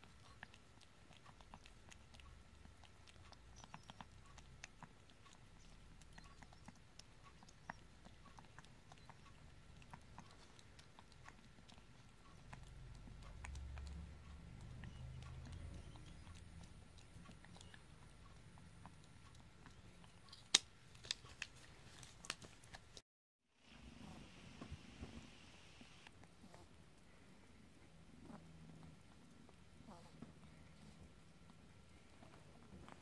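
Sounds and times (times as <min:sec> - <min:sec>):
kitten tongue licking: 0:00.0 - 0:23.0.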